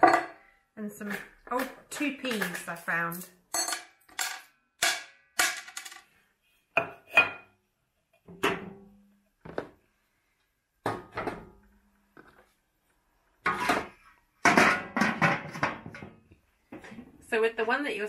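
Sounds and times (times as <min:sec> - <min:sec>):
poles and coins knocking and clinking: 0:01.0 - 0:06.1.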